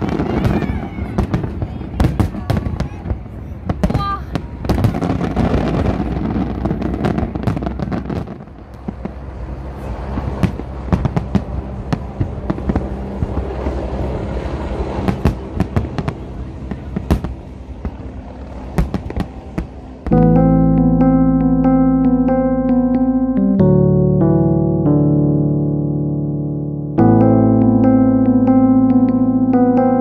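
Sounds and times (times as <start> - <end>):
fireworks bursts and bangs: 0.0 - 9.2, 9.9 - 13.7, 15.0 - 19.8
low rumble: 0.0 - 30.0.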